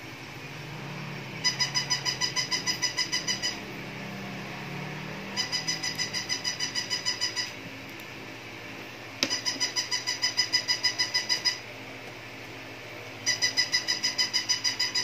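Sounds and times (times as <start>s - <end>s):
rapid pulsing beep: 1.4s - 3.7s, 5.1s - 7.6s, 9.2s - 11.6s, 13.2s - 15.0s.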